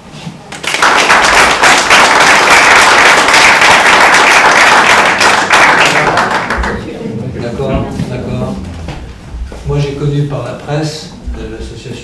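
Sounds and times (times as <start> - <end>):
audience applauding: 0.5 - 7.7.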